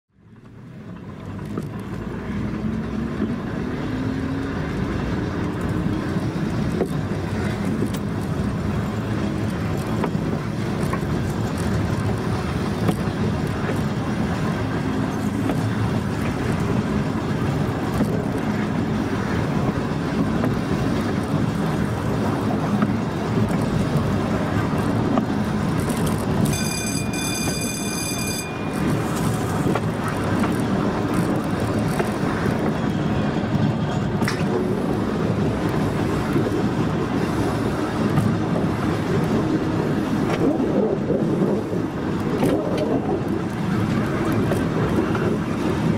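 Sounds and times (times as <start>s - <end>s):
wheels rumbling on rail: 0.1s - 45.9s
high warning tone: 26.4s - 29.7s.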